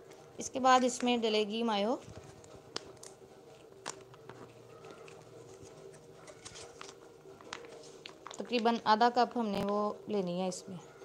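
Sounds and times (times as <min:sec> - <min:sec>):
plastic pouch clicking and rustling: 0:02.1 - 0:09.8.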